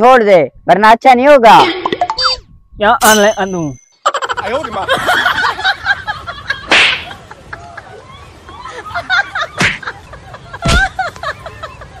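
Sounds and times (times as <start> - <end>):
slaps on a person's back: 6.7 - 7.1, 9.6 - 9.8, 10.6 - 10.9.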